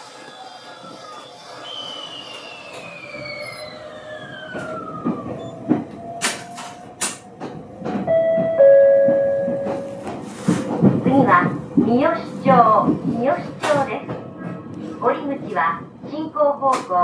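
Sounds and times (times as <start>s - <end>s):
train motor whine: 0.0s - 10.6s
wheels clacking over rail joints: 0.0s - 17.0s.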